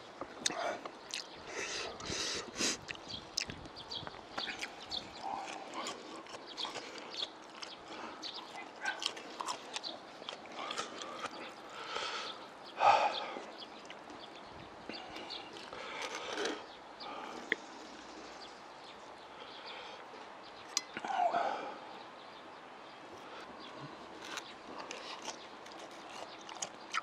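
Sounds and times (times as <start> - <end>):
wet chewing and smacking: 0.3 - 1.4, 2.7 - 11.8, 13.4 - 16.8, 24.1 - 27.0.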